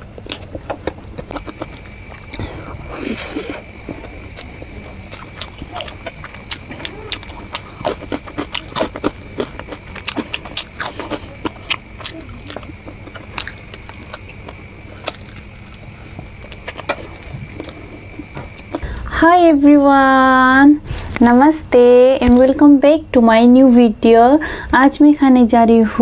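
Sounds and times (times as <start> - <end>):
wet chewing clicks and smacks: 0.0 - 19.0
high-pitched whine: 0.0 - 20.6.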